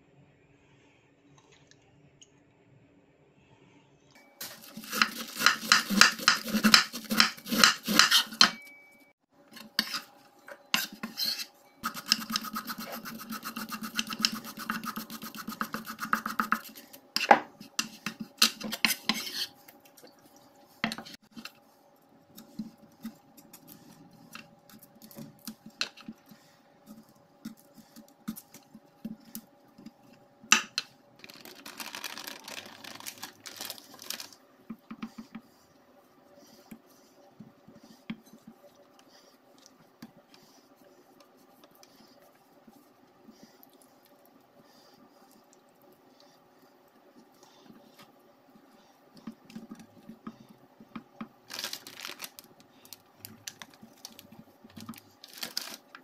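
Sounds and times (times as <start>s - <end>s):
vegetables shredded on chopping board: 4.4s - 8.6s, 31.2s - 34.4s
utensils knocking on board and dishes: 4.4s - 8.7s.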